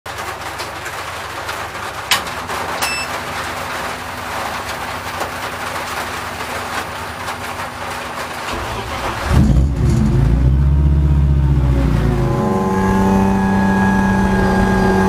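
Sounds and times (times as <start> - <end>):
rain on car roof: 0.1 - 15.0
short electronic beep: 2.8 - 3.1.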